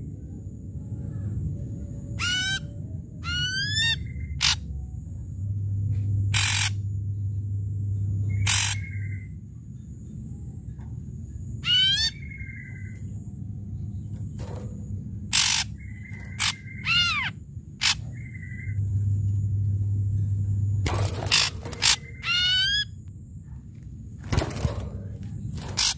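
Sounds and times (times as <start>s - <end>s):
bird singing varied song: 8.0s - 14.6s, 15.2s - 19.0s, 20.9s - 23.0s.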